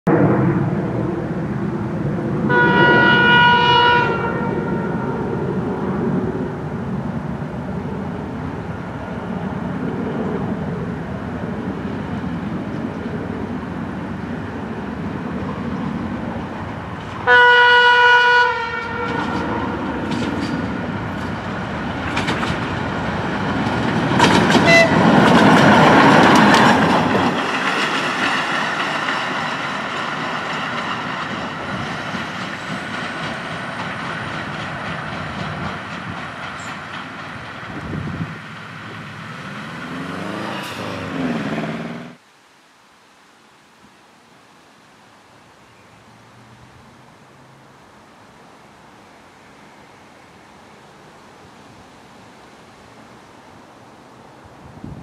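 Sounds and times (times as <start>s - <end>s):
diesel locomotive engine running: 0.7s - 42.2s
locomotive horn blast: 2.4s - 5.2s, 17.2s - 19.8s, 24.2s - 25.2s
train wheels clattering and grinding: 18.9s - 41.6s.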